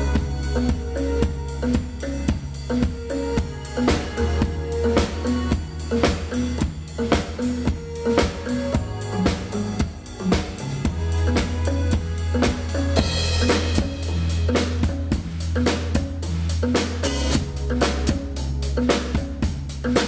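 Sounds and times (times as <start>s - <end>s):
acoustic drum kit groove: 0.0s - 20.0s
backing track with deep bass: 0.0s - 20.0s.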